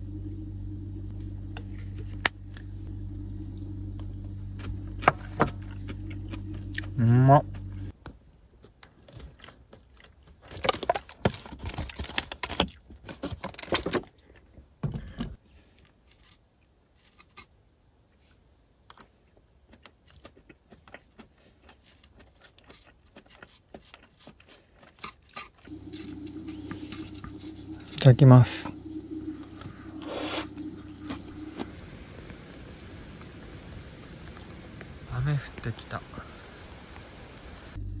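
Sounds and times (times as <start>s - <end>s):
person chewing and crunching food: 3.5s - 7.8s, 8.6s - 13.4s, 19.2s - 27.8s, 28.9s - 32.0s.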